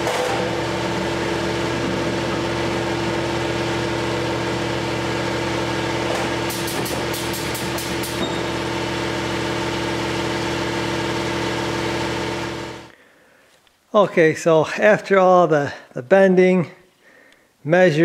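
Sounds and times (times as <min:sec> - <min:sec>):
electric motor humming: 0:00.0 - 0:12.9.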